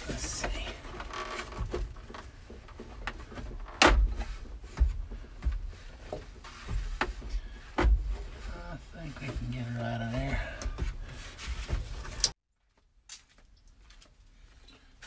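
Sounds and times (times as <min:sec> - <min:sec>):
clunks and knocks on dashboard: 0:01.5 - 0:08.4.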